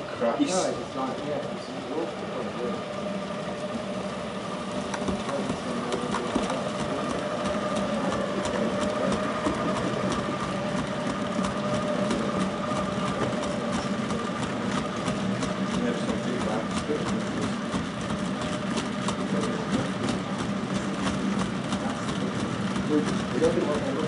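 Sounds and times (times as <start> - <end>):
model locomotive hum: 0.0 - 24.0
small wheel clicks on track: 4.8 - 24.0.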